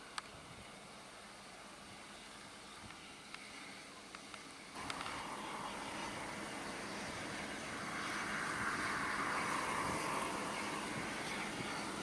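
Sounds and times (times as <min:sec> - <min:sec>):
combine harvester running: 0:04.7 - 0:12.0.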